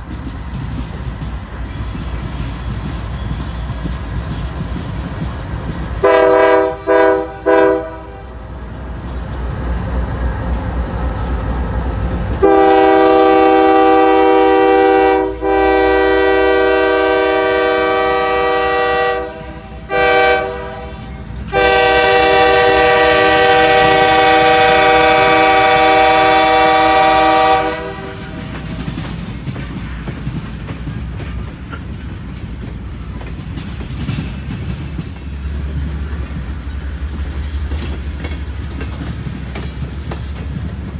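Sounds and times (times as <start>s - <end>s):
freight cars rumbling and clacking: 0.0s - 12.6s, 27.6s - 40.9s
locomotive air horn blasts: 6.0s - 8.4s, 12.4s - 28.4s.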